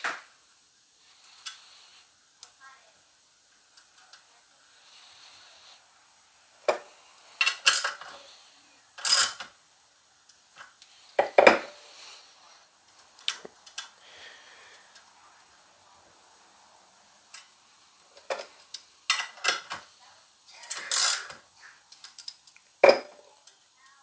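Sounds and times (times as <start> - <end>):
small metal parts clinking: 7.4 - 8.2, 9.0 - 9.5, 20.7 - 23.2.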